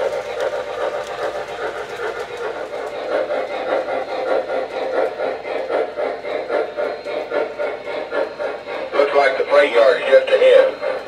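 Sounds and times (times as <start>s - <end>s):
model train rolling rumble: 0.0s - 11.0s
wheels clicking on rails: 0.0s - 11.0s.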